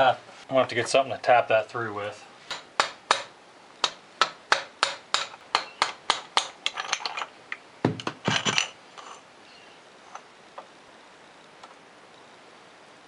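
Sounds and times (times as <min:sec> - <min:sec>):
hammer tapping metal: 0:02.5 - 0:06.8
metal clanks: 0:05.2 - 0:07.3, 0:07.9 - 0:09.2.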